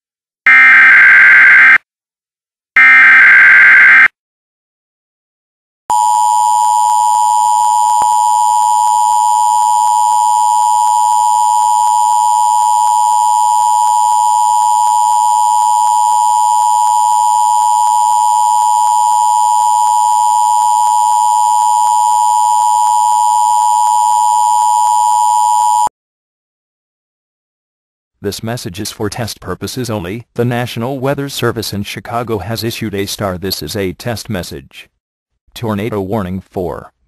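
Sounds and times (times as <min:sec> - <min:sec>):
steady electronic alarm tone: 0:00.5 - 0:01.8, 0:02.8 - 0:04.1, 0:05.9 - 0:25.9.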